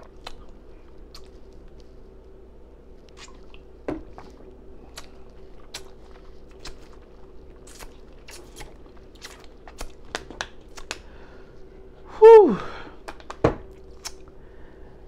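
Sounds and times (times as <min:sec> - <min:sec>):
tongue clicks: 0:00.0 - 0:01.3, 0:14.0 - 0:14.3
lip smacks: 0:00.0 - 0:01.9, 0:03.0 - 0:11.1, 0:13.0 - 0:14.4.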